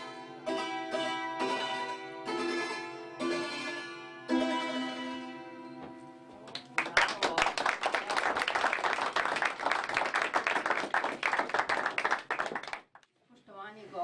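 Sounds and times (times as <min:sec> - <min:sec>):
audience applauding: 0:06.5 - 0:13.0.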